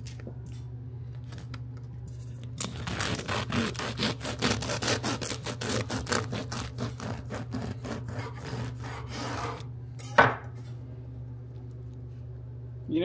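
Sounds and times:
knife sawing through bread crust: 0:02.6 - 0:09.7.

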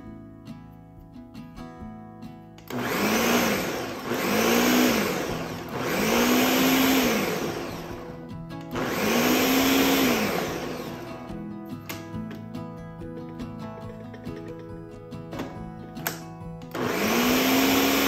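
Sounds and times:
blender motor pulsing: 0:02.7 - 0:11.3, 0:16.7 - 0:18.0.

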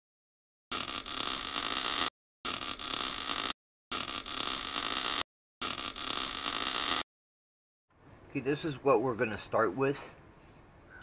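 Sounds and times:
cutting tool sparks hissing: 0:00.7 - 0:07.0.

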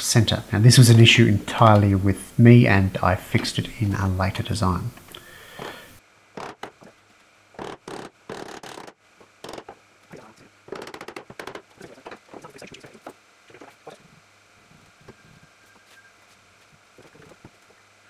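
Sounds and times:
chisel scraping and knocking wood: 0:09.4 - 0:09.8, 0:10.7 - 0:12.4.

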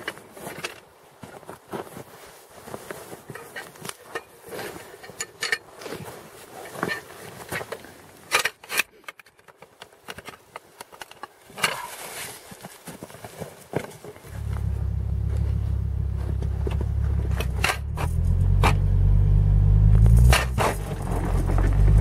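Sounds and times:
handling noises: 0:00.0 - 0:19.0
footsteps crunching in snow: 0:00.3 - 0:04.8, 0:11.8 - 0:18.6.

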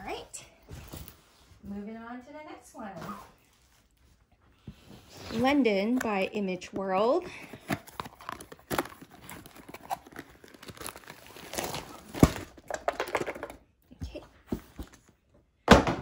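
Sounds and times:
cardboard box rustling: 0:07.0 - 0:12.6.

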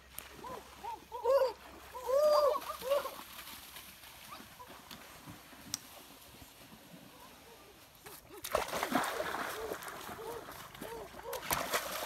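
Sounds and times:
water splashing: 0:08.2 - 0:12.0.

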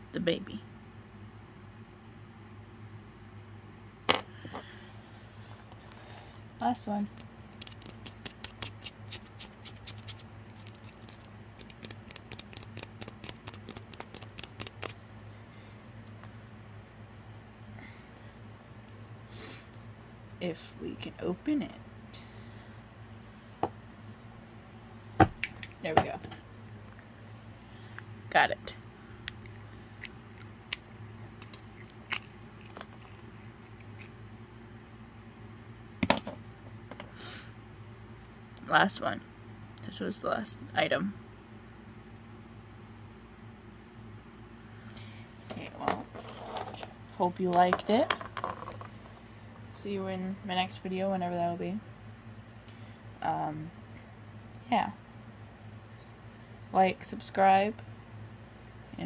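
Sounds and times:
faint low hum: 0:00.0 - 0:59.0
fingers scratching plastic egg: 0:07.1 - 0:15.0.

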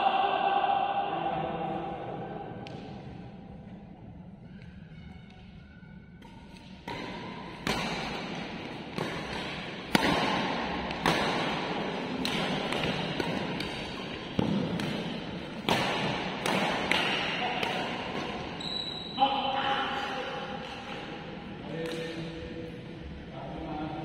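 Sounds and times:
rackets striking shuttlecock: 0:06.1 - 0:18.8, 0:20.5 - 0:22.4.

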